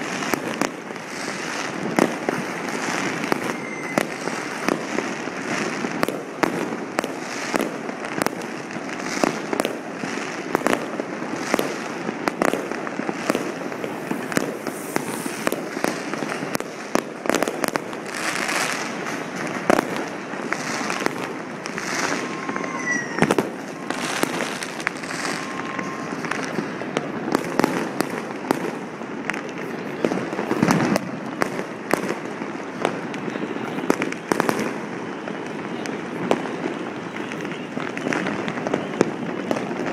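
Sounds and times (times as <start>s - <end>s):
fireworks bangs: 0.0s - 39.9s
fireworks crackling: 0.0s - 39.9s
falling whistle: 3.4s - 4.2s, 22.0s - 26.6s.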